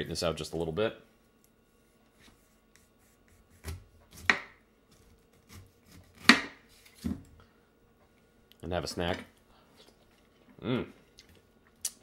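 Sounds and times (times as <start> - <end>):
knife cutting pineapple: 2.8 - 6.7.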